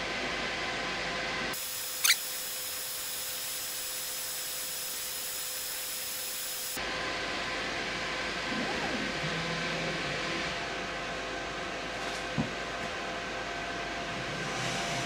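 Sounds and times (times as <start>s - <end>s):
laser engraver fans running: 0.0s - 12.0s
high hiss with thin tones: 1.6s - 6.8s
rising squeal: 1.9s - 2.6s.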